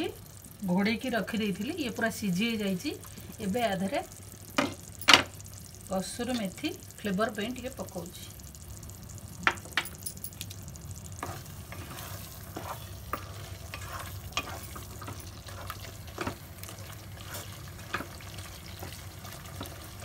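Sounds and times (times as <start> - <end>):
spoon scraping and clinking pan: 11.2 - 16.4.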